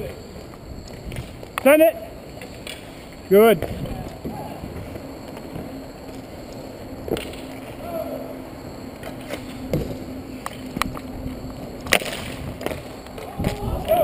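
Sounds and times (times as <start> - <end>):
skate wheels rolling: 0.0 - 14.0
sticks and puck clacking: 11.9 - 13.6.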